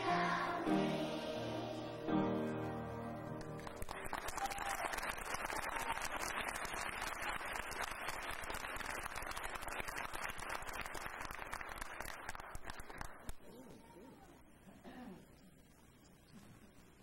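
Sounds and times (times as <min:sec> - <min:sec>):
children's choir singing: 0:00.0 - 0:03.2
audience applauding: 0:03.3 - 0:13.4.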